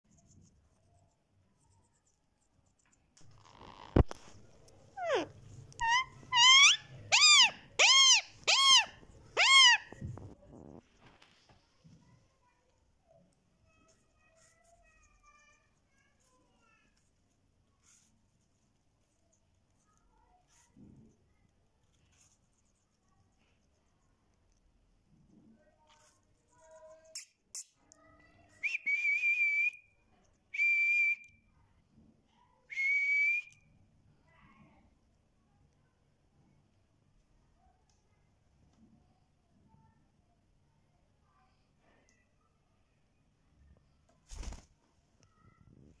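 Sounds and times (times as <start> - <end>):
parakeet calling: 5.0 - 10.0.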